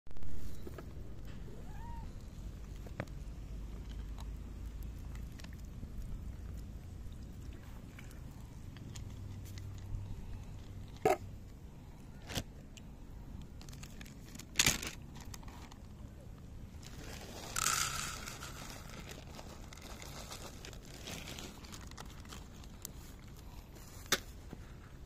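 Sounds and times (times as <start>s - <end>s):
plastic bag crinkling: 13.6s - 15.8s, 16.8s - 23.4s
kibble clicks and rattles: 16.8s - 23.0s
kibble poured into plastic dish: 16.9s - 19.7s.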